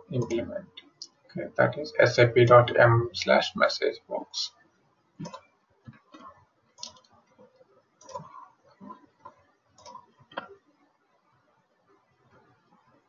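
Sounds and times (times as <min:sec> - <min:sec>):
computer mouse and keyboard clicks: 0:05.2 - 0:10.6.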